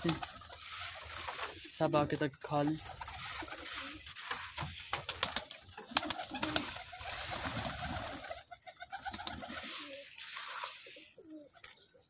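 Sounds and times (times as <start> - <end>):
pigeons cooing softly: 5.8 - 12.0.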